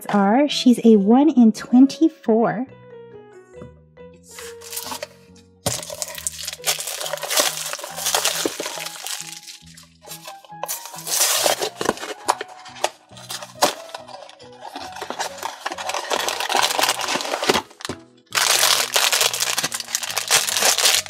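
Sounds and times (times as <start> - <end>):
background music: 0.0 - 21.0
foil bag crinkling: 4.3 - 5.1, 5.7 - 21.0.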